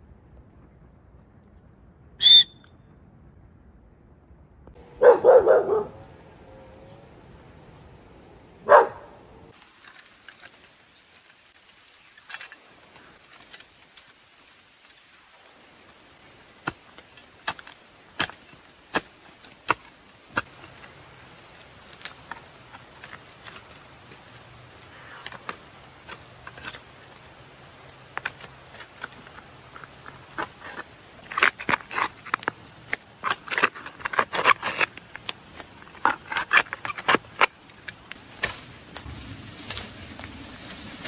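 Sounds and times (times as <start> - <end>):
dog barking: 4.9 - 6.1, 8.6 - 9.2.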